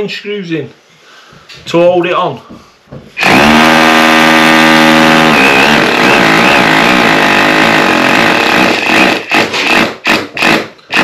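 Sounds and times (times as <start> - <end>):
hammer drill drilling into wall: 3.2 - 11.0.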